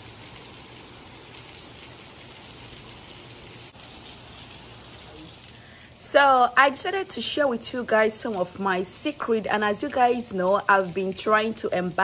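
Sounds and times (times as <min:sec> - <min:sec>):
rain on brick paving: 0:00.0 - 0:12.0.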